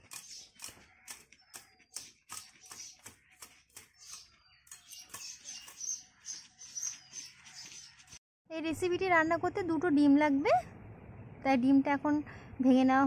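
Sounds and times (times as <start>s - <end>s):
sickle cutting bamboo twigs: 0.0s - 5.8s.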